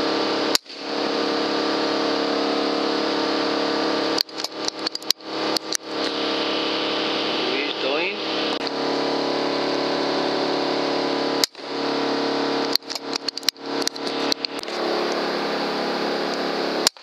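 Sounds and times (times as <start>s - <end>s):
low machine hum: 0.0s - 17.0s
sharp clicks: 4.2s - 6.2s, 12.6s - 15.2s.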